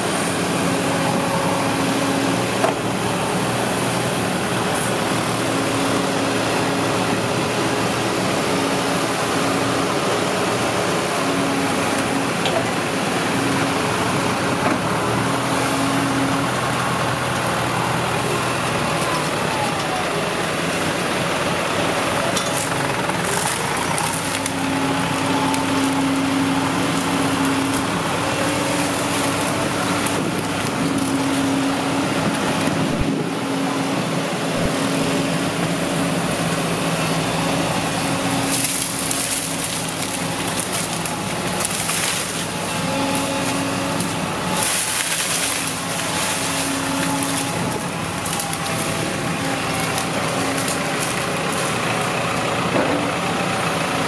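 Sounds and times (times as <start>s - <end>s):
excavator diesel engine droning: 0.0s - 54.0s.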